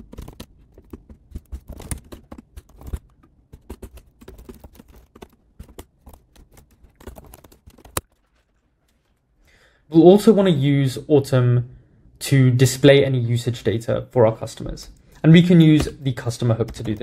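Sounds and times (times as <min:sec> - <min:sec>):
keyboard typing: 0:00.0 - 0:08.4, 0:15.7 - 0:17.0.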